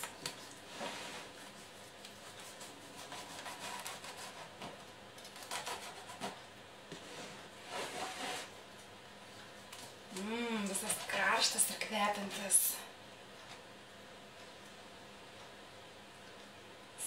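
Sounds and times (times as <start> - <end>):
knife sawing through cake: 0.9 - 4.6, 5.4 - 6.4.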